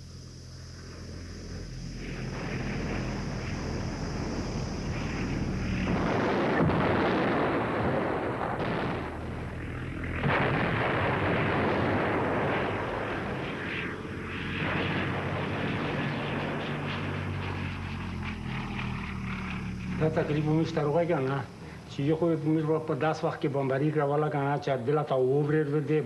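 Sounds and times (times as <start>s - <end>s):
propeller aircraft engines droning: 0.0s - 26.0s
bomb explosions rumbling: 2.0s - 17.6s.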